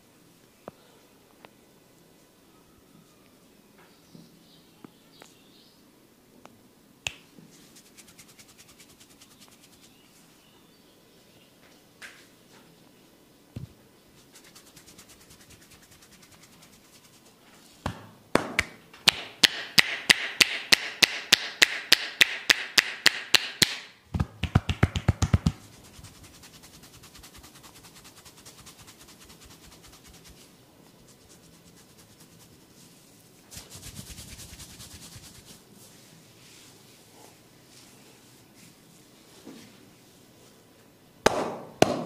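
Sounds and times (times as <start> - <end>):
rubbing: 7.5 - 10.2, 14.2 - 17.8, 25.4 - 36.7
hands slapping head: 17.8 - 25.6.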